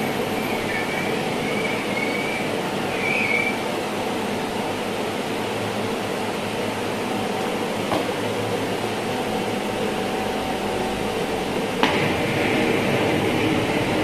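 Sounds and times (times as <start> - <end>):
mechanical drone with hiss: 0.0 - 14.0.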